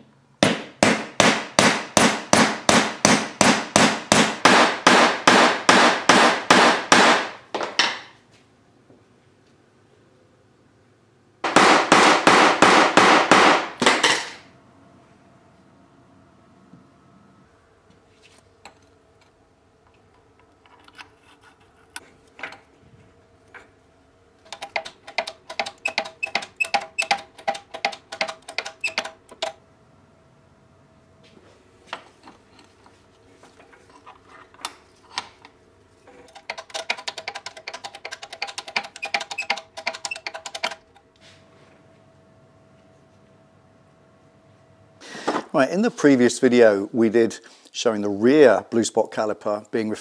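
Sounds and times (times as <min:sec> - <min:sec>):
faint steady hum: 0:00.0 - 0:50.0
metallic clicking of hand tools: 0:24.4 - 0:29.6, 0:36.2 - 0:40.8.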